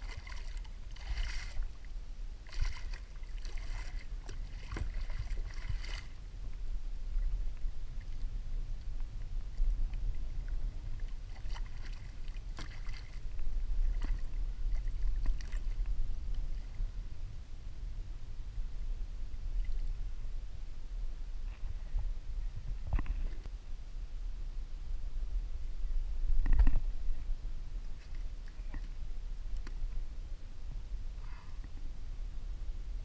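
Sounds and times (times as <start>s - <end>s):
fish thrashing and water splashing: 0.0s - 6.3s, 10.9s - 15.9s
steady low rumble: 0.0s - 33.0s.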